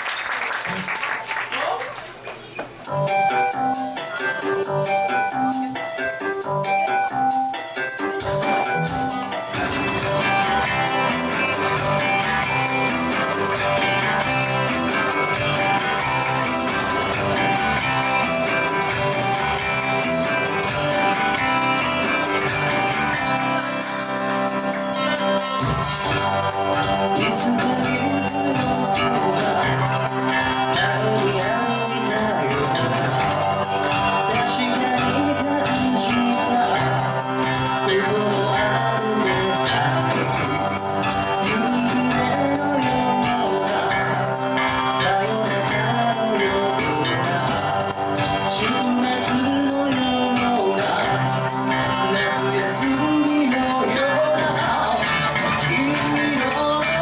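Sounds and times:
live band playing: 0:02.4 - 0:57.0
electric guitar: 0:02.8 - 0:57.0
electric bass: 0:08.2 - 0:57.0.

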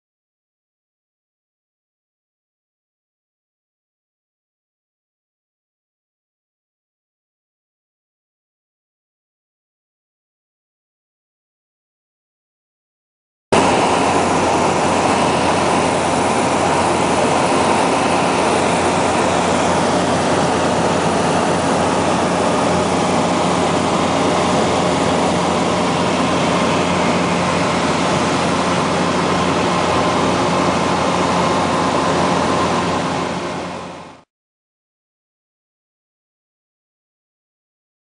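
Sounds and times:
light aircraft engine droning: 0:13.6 - 0:34.3.

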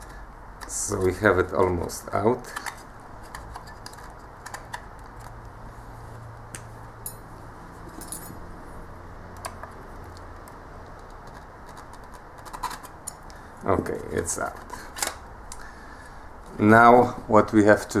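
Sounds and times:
low steady hum: 0:00.0 - 0:18.0
plastic and metal clicks and scrapes: 0:02.4 - 0:05.4, 0:09.4 - 0:13.3.

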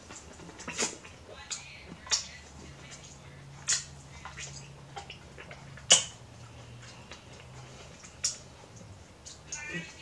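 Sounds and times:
chewing corn on the cob: 0:00.0 - 0:10.0
low steady hum: 0:00.0 - 0:10.0.

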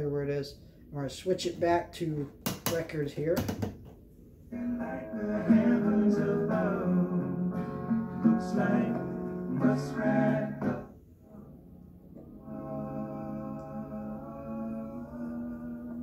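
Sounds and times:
guitar music with singing: 0:04.5 - 0:11.6, 0:12.2 - 0:16.0.

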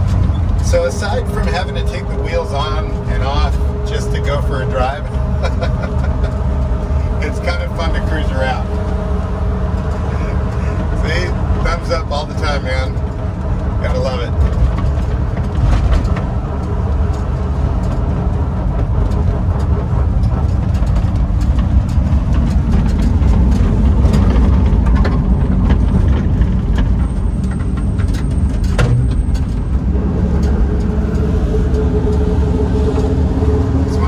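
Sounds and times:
engine running: 0:00.0 - 0:34.0
road noise: 0:00.0 - 0:34.0
steady tone: 0:28.8 - 0:34.0.

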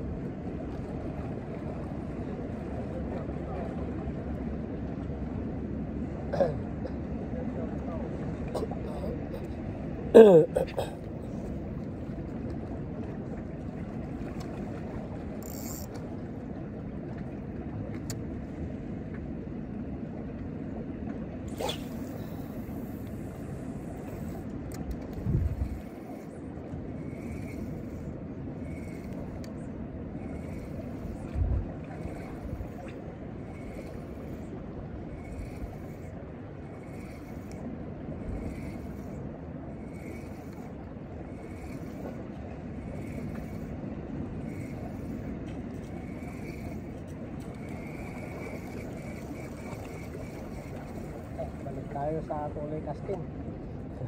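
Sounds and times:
wind noise on microphone: 0:24.9 - 0:26.0, 0:31.1 - 0:33.0
wind buffeting microphone: 0:24.9 - 0:39.9.

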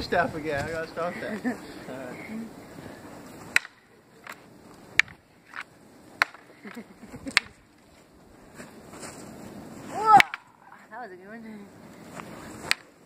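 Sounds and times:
wooden swords clacking: 0:03.5 - 0:04.4, 0:05.0 - 0:07.8, 0:10.0 - 0:10.6, 0:12.6 - 0:13.0.

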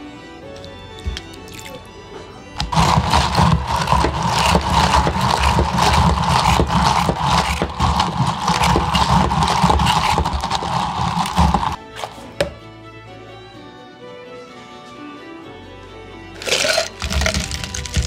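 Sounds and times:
ice rattling against plastic cup: 0:02.6 - 0:11.8, 0:16.4 - 0:18.0.

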